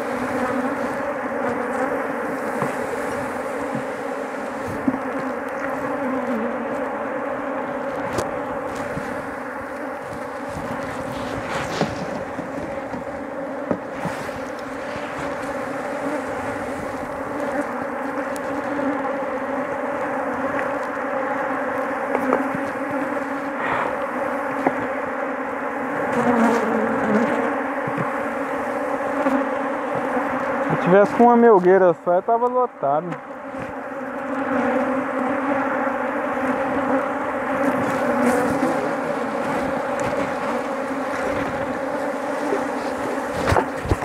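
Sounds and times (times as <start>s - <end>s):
bees buzzing: 0.0s - 44.0s.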